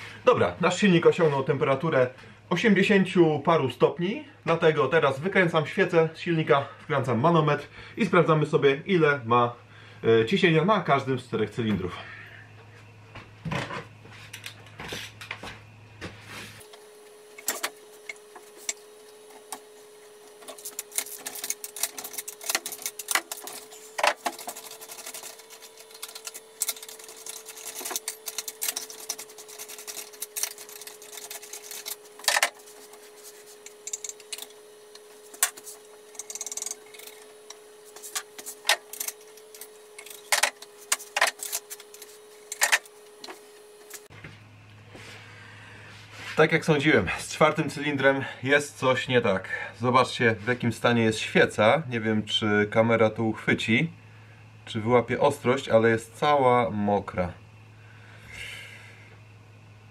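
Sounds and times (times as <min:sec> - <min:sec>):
faint steady hum: 0:00.0 - 0:59.9
hand tools clicking and knocking: 0:20.3 - 0:32.8, 0:33.6 - 0:37.3, 0:37.9 - 0:43.4.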